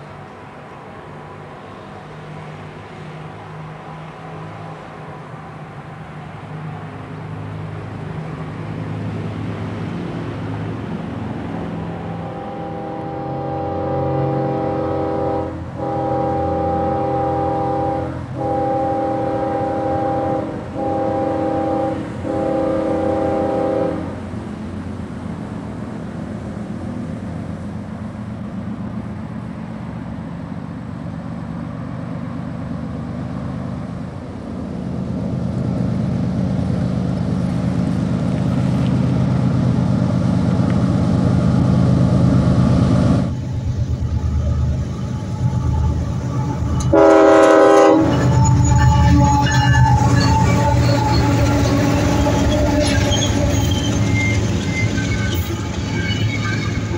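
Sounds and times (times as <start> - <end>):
train diesel engines rumbling: 0.0 - 56.9
locomotive air horn blasts: 12.0 - 24.3, 43.2 - 56.9.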